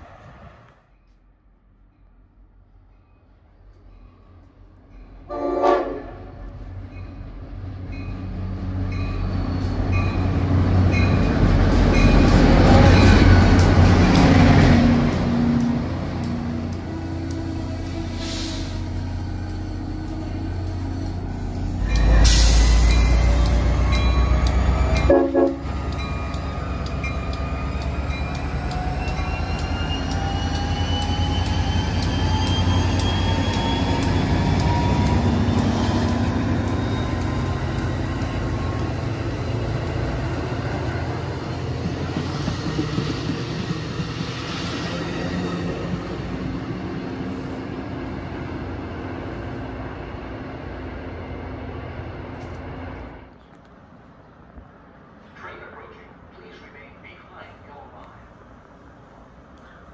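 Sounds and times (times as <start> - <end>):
train whine: 2.8 - 59.8
train wheels rumbling on rail: 3.7 - 53.8
train horn: 5.3 - 6.4, 25.0 - 25.7.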